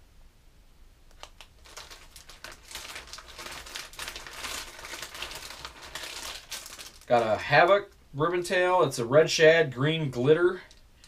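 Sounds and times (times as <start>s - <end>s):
plastic bags crinkling: 1.1s - 8.0s.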